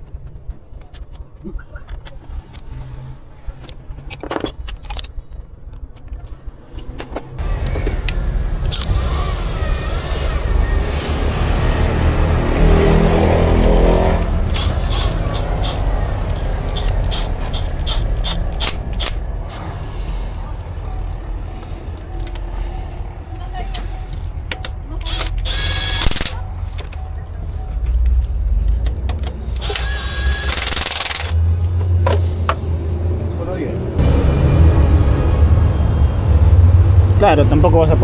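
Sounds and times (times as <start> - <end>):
outdoor vehicle noise: 0.0 - 38.0
metallic tool clicks: 14.5 - 19.2.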